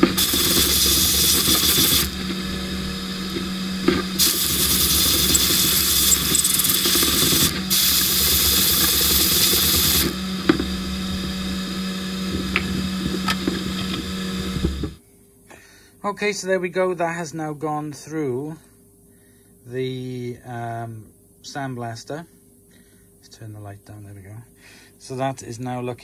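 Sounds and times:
sandblast gun hissing: 0.0 - 10.2
steady low hum: 0.0 - 15.0.

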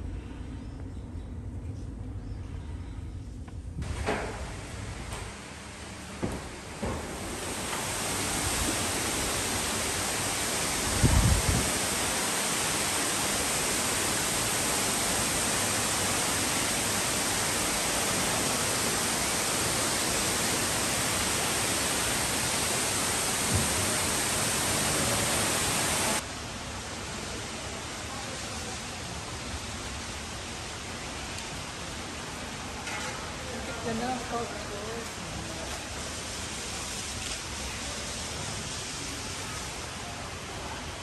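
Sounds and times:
quiet ambience: 0.0 - 10.8
indoor waterfall rushing: 3.8 - 41.0.

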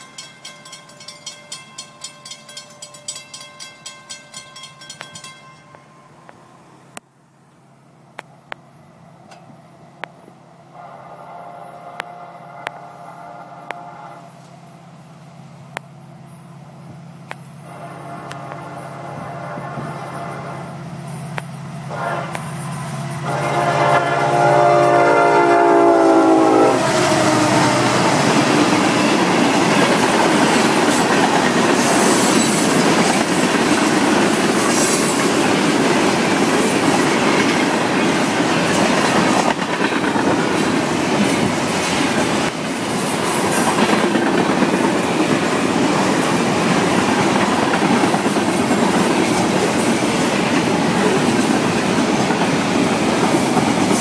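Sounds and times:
freight train rumbling past: 0.0 - 54.0
locomotive horn: 10.7 - 14.4, 17.6 - 20.8, 21.8 - 29.3.

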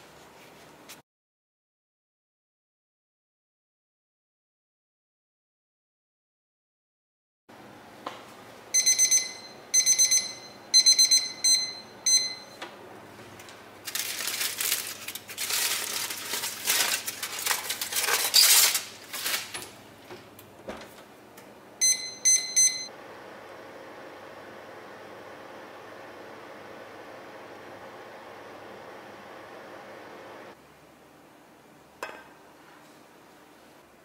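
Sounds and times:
electronic oven beeps: 8.7 - 12.7, 21.8 - 23.0
aluminium foil crinkling: 13.8 - 19.8.

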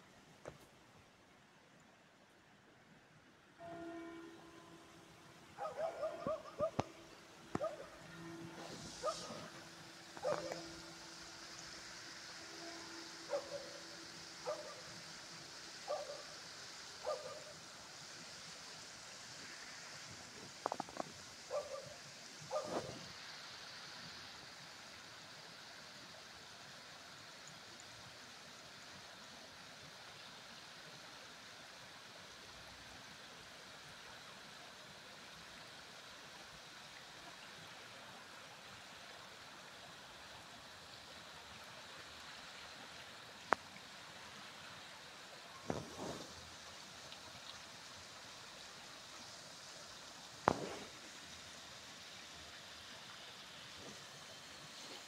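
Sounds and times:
water trickling down stone steps: 40.2 - 55.0.

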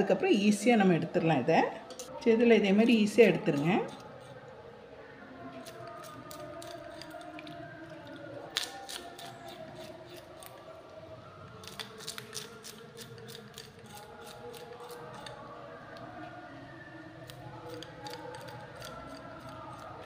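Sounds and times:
fish scaler scraping scales: 2.8 - 4.5, 5.6 - 10.7, 11.5 - 15.5, 17.2 - 20.0.

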